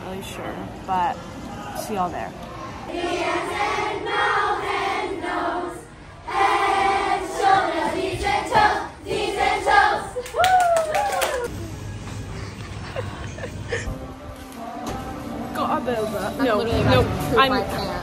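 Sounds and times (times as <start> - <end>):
children singing in chorus: 2.9 - 10.2.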